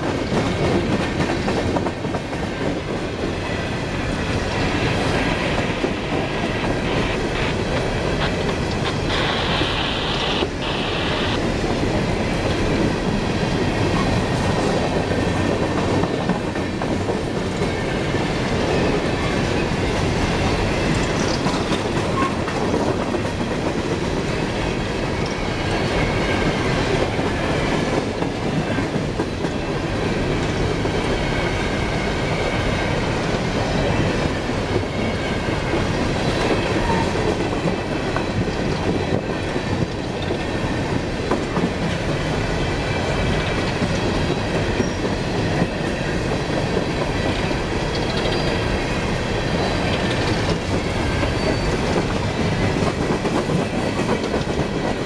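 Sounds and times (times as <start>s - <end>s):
train cars rumbling and rattling: 0.0s - 55.0s
faint wheel squeal: 51.3s - 51.8s.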